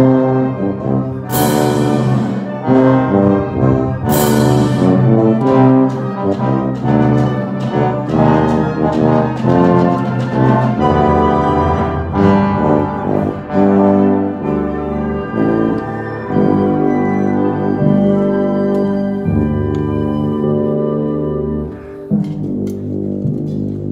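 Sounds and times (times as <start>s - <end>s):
tuba bass line: 0.0s - 23.9s
wind orchestra playing: 0.0s - 23.9s.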